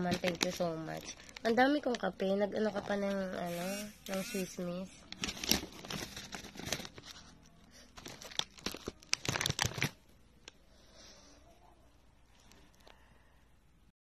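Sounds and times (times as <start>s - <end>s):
plastic packaging crinkling: 0.0s - 2.1s, 5.0s - 10.0s.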